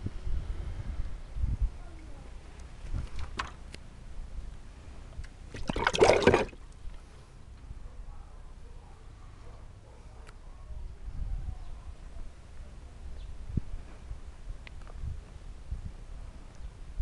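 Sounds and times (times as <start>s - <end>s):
wind rumble on microphone: 0.0s - 5.6s, 10.7s - 17.0s
water splashing in a plastic basin: 5.5s - 6.7s.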